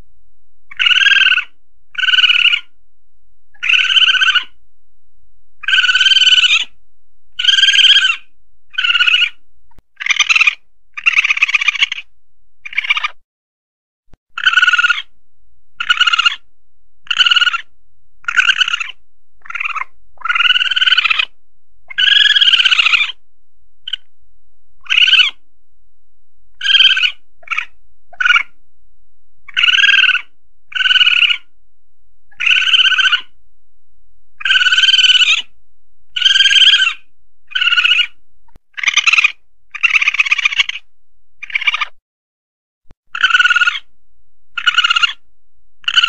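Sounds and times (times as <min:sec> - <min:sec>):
palm civet shrill cries: 0:00.7 - 0:02.7, 0:03.6 - 0:04.6, 0:05.6 - 0:06.7, 0:07.4 - 0:09.4, 0:10.0 - 0:13.2, 0:14.4 - 0:15.1, 0:15.8 - 0:16.4, 0:17.0 - 0:21.3, 0:21.9 - 0:23.2, 0:24.8 - 0:25.4, 0:26.6 - 0:28.5, 0:29.5 - 0:31.5, 0:32.3 - 0:33.4, 0:34.4 - 0:35.5, 0:36.2 - 0:40.8, 0:41.4 - 0:42.0, 0:43.1 - 0:43.9, 0:44.6 - 0:45.2.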